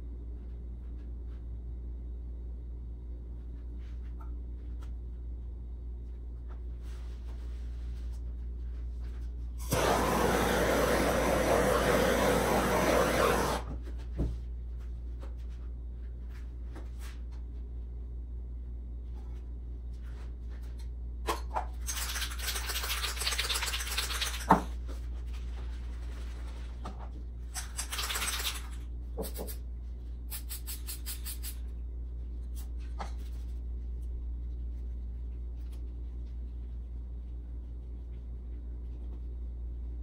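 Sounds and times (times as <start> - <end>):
steady low hum: 0.0 - 21.8, 24.7 - 40.0.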